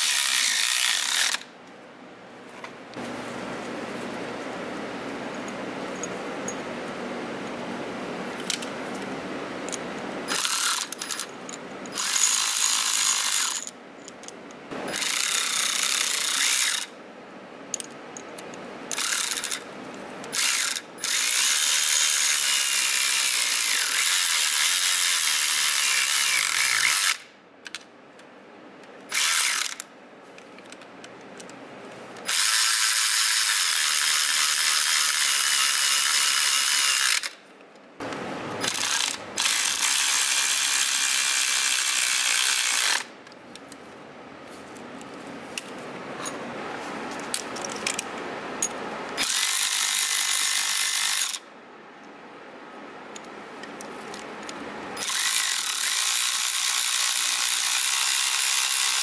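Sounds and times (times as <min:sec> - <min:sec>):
cordless electric ratchet running: 0:00.0 - 0:01.5, 0:10.3 - 0:11.3, 0:11.9 - 0:13.7, 0:14.9 - 0:16.9, 0:18.9 - 0:19.6, 0:20.3 - 0:27.3, 0:29.1 - 0:29.8, 0:32.2 - 0:37.4, 0:38.6 - 0:43.1, 0:49.2 - 0:51.4, 0:55.0 - 0:59.0.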